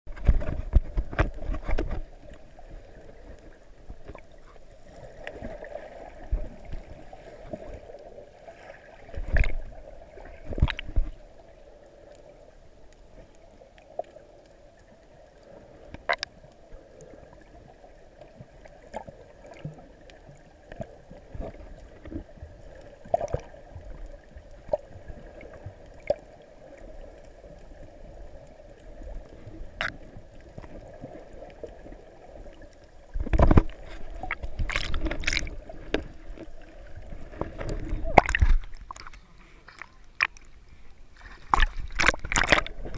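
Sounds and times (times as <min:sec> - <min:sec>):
underwater clicks and knocks: 0:00.1 - 0:02.4, 0:09.1 - 0:09.7, 0:10.4 - 0:11.2, 0:15.9 - 0:16.3, 0:29.7 - 0:30.8, 0:33.1 - 0:40.5, 0:41.4 - 0:42.9
underwater sloshing: 0:00.1 - 0:42.9.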